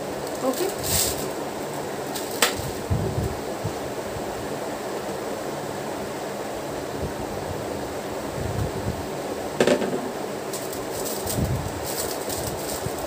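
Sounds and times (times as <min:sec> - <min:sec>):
background hiss: 0:00.0 - 0:13.0
utensils and bowl thumping: 0:09.6 - 0:12.9.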